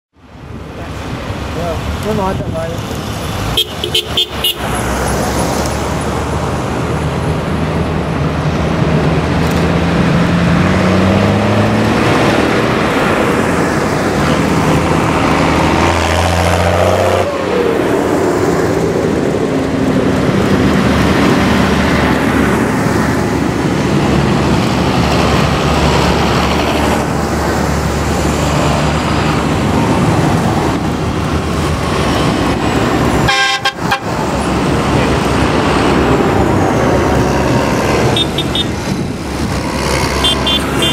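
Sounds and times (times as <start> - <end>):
tractor engines driving past: 0.2 - 40.9
vehicle horn toot: 3.6 - 4.7, 33.3 - 34.1, 38.2 - 38.7, 40.2 - 40.9.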